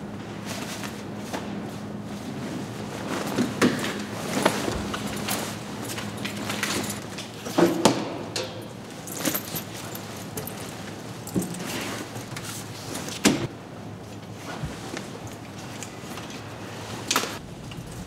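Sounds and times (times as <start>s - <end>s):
heavy coat rustling: 0.3s - 7.0s
metal buckles jingling: 4.3s - 11.8s
sharp metal clanks: 7.7s - 8.8s.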